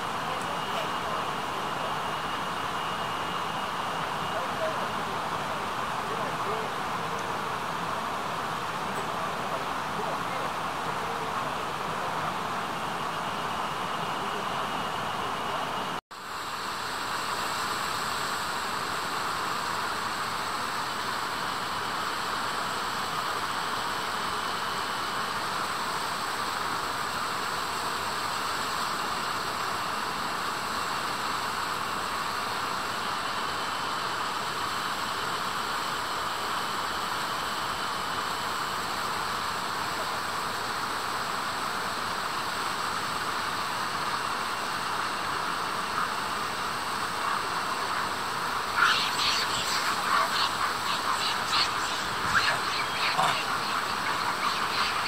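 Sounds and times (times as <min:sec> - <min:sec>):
steady rushing noise: 0:45.5 - 0:55.0.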